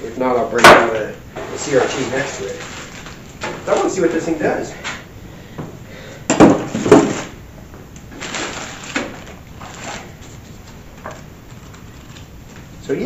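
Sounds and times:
plastic bags rustling: 1.4 - 5.0, 8.1 - 13.0.

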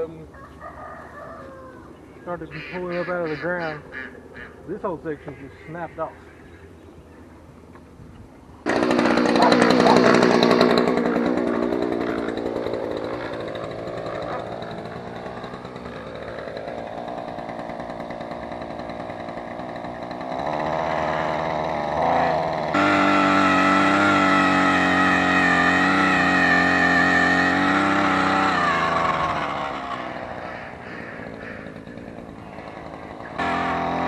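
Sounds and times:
small gasoline engine running: 8.6 - 34.0.

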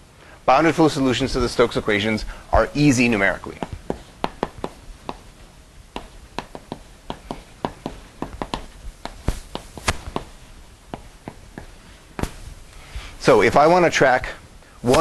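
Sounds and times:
chalk tapping on blackboard: 3.5 - 5.3, 5.9 - 12.3.

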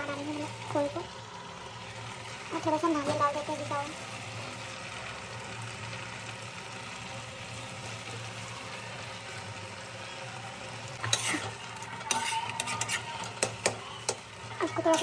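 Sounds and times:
carrots sizzling in a pan: 0.0 - 15.0
metal spatula scraping a pan: 11.0 - 15.0.

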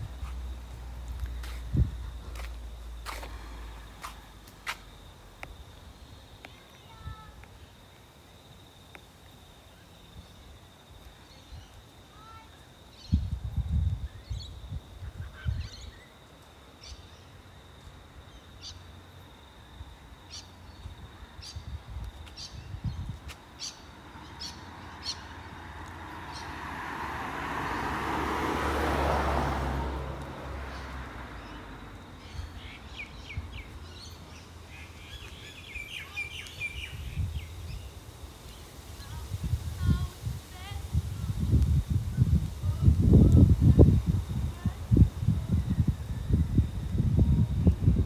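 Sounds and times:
car passing: 0.0 - 5.9, 23.6 - 38.1
birds chirping: 30.7 - 38.7.

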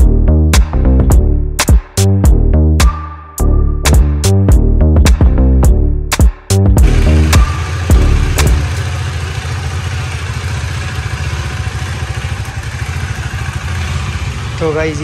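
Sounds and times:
motorcycle engine idling: 6.8 - 15.0.

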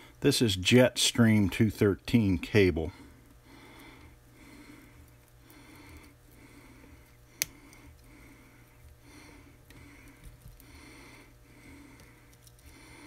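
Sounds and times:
man wheezy breathing: 3.0 - 13.0.

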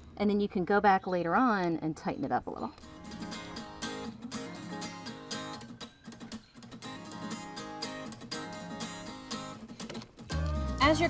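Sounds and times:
strummed guitar chords: 2.9 - 11.0.

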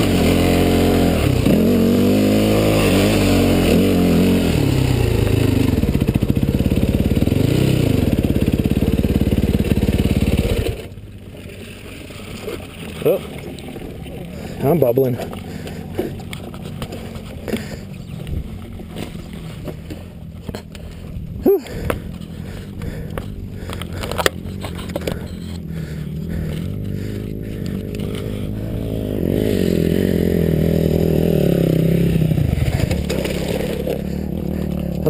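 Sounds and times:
dirt bike engines idling: 0.0 - 35.0
dirt bikes riding up: 0.0 - 35.0
knocks and scrapes: 21.8 - 25.6, 32.5 - 35.0.

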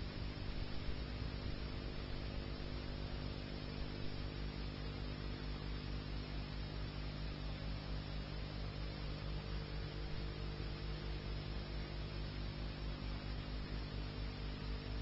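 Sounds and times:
electrical hum with buzz: 0.0 - 15.0.

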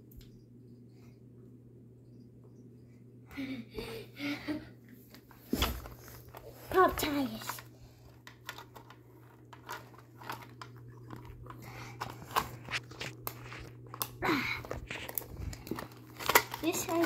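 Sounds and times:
steady low hum: 0.0 - 17.0
plastic toy parts clicking and crackling: 6.3 - 17.0.

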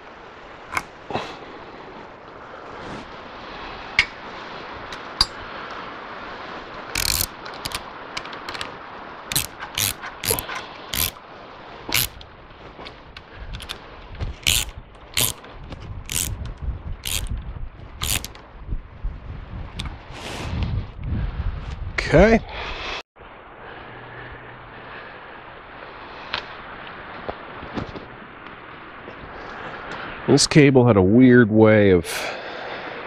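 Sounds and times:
metal cable clicking against steel frame: 7.0 - 11.2, 11.9 - 12.3, 14.4 - 15.5, 16.1 - 17.4, 18.0 - 18.4.

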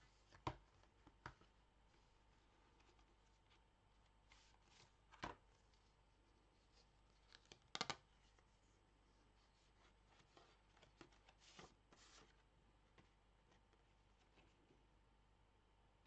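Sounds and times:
paper rustling and sliding: 9.4 - 12.5.

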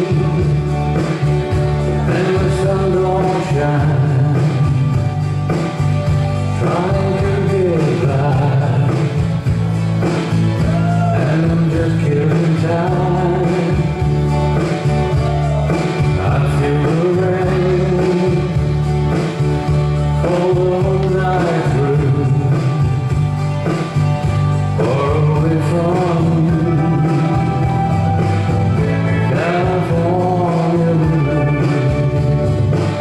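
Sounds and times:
country song with vocals and band: 0.0 - 33.0.

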